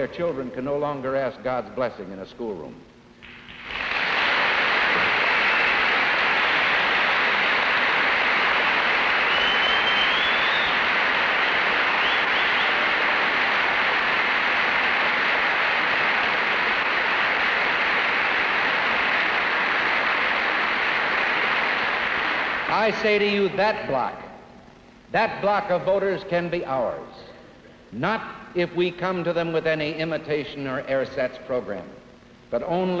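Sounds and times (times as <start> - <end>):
audience applauding: 3.2 - 23.4
rising whistle: 5.4 - 6.1, 8.3 - 13.0.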